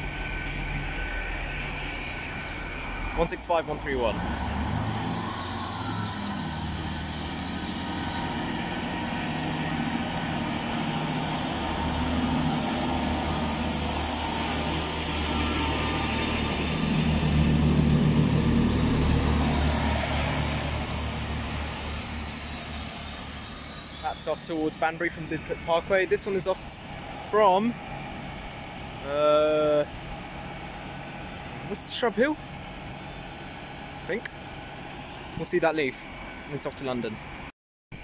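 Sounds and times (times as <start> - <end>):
diesel train engine drone: 0.0 - 38.0
high hiss: 5.2 - 27.0.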